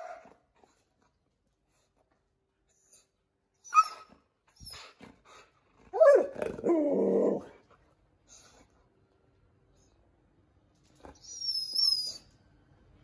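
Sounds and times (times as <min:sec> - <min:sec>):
dog yip: 0:03.6 - 0:04.9, 0:11.2 - 0:12.3.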